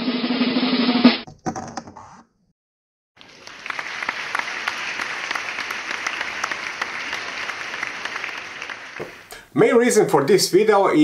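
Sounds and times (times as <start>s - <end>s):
applause: 3.2s - 9.4s.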